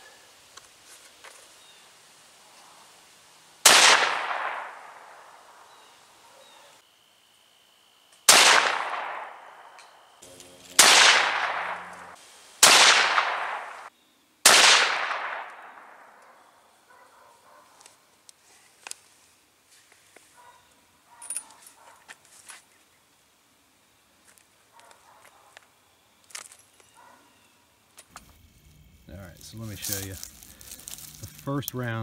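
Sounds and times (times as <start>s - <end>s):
rifle shots with echo: 3.6s - 5.2s, 8.3s - 9.7s, 10.7s - 16.2s.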